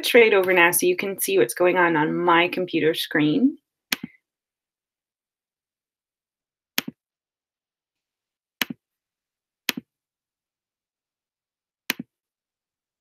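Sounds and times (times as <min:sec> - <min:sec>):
computer mouse clicks: 0:06.8 - 0:07.0, 0:11.9 - 0:12.1.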